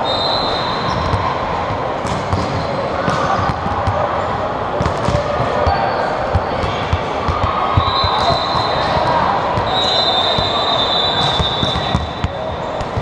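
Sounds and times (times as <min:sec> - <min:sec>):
murmur of people: 0:00.0 - 0:13.0
volleyballs smacking on gym floor: 0:01.0 - 0:04.0, 0:04.8 - 0:05.6, 0:06.3 - 0:10.6, 0:11.2 - 0:13.0.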